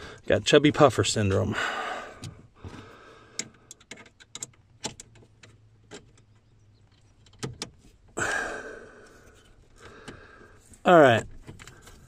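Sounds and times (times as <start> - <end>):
heavy breath: 1.5 - 3.6, 8.2 - 10.7.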